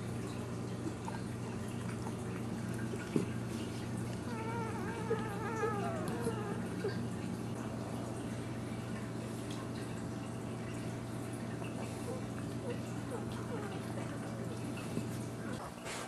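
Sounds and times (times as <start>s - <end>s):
puppy whimpering: 4.1s - 7.2s, 11.8s - 15.6s.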